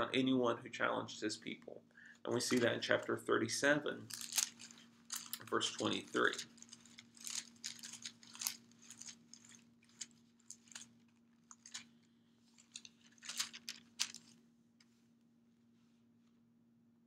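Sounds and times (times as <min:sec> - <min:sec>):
steady low hum: 0:00.0 - 0:15.0
brief rustles: 0:12.5 - 0:14.4.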